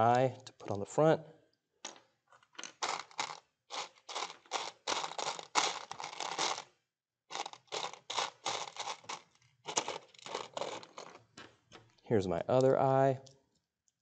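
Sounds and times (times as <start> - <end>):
plastic toy bricks scraping: 1.9 - 6.7, 7.3 - 11.9.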